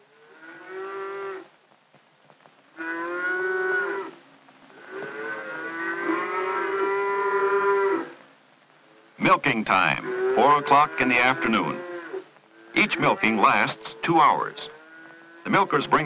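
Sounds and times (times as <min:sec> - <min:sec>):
cow mooing: 0:02.8 - 0:04.2, 0:04.8 - 0:08.2, 0:09.8 - 0:16.0.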